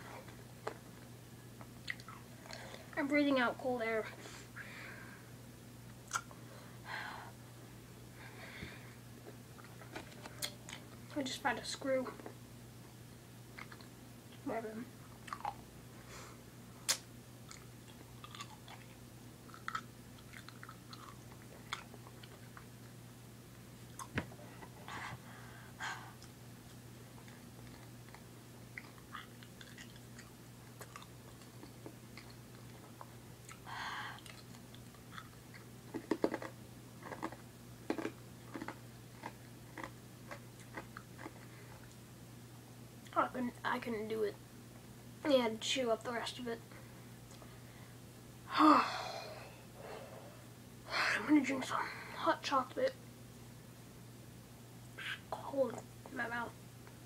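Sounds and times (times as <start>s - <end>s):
faint low hum: 0.0s - 57.0s
wet mouth clicks: 6.1s - 6.3s, 16.9s - 17.7s.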